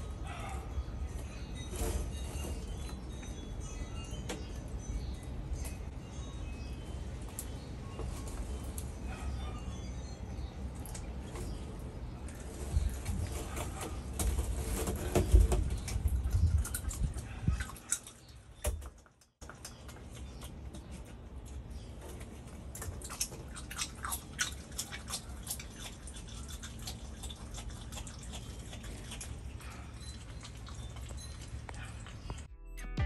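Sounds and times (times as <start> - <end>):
animal chewing food wetly: 19.4 - 32.5.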